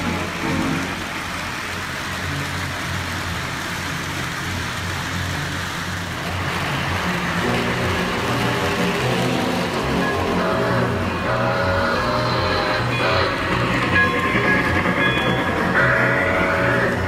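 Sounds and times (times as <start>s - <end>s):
toy trains rumbling on track: 0.0s - 17.0s
music: 6.8s - 17.0s.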